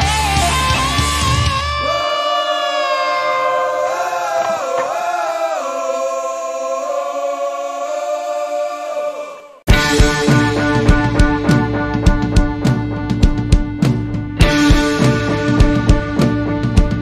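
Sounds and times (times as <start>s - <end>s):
punk rock drums and bass: 0.0s - 1.8s, 9.7s - 17.0s
voices holding long notes: 1.7s - 12.0s.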